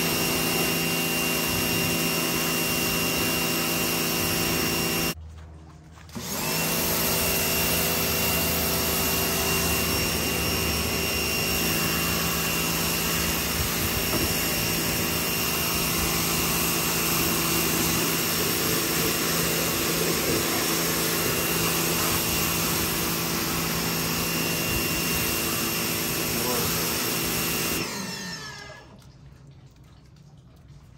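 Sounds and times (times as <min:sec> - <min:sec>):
pressure washer motor whine: 0:00.0 - 0:05.2, 0:06.1 - 0:29.0
water spray hiss: 0:11.5 - 0:23.7.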